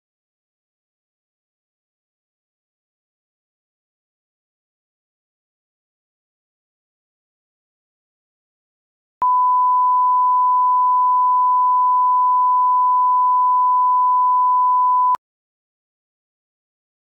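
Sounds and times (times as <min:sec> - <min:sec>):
steady test tone beep: 0:09.2 - 0:15.2.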